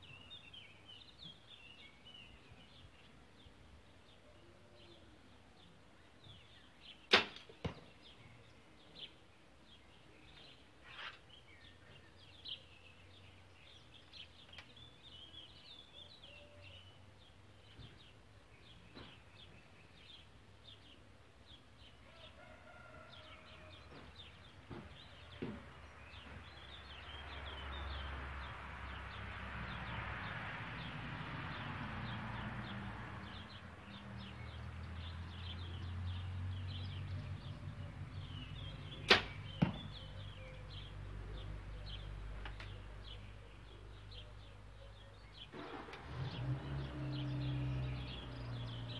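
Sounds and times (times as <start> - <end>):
weaker crack: 7.1 - 7.6.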